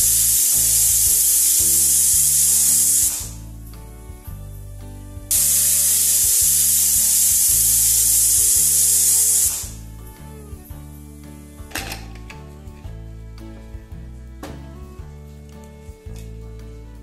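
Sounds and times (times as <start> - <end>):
pressure cooker whistle hissing: 0.0 - 3.4, 5.3 - 9.9
background music: 0.0 - 17.0.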